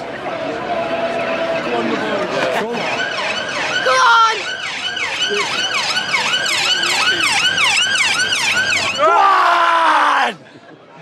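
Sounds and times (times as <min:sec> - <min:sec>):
slow falling siren tone: 0:00.8 - 0:09.2
emergency siren yelping: 0:01.0 - 0:09.3.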